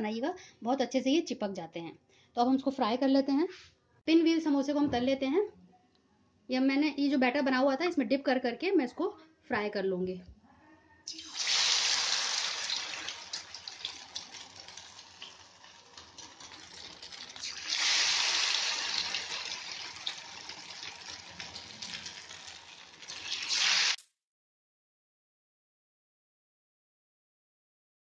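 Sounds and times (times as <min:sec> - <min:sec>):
food deep-frying in oil: 0:11.1 - 0:24.1.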